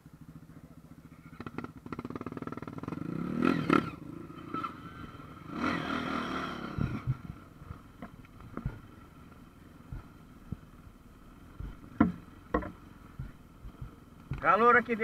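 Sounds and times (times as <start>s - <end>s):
dirt bike engine revving: 1.0s - 15.0s
low thumps: 6.7s - 14.8s.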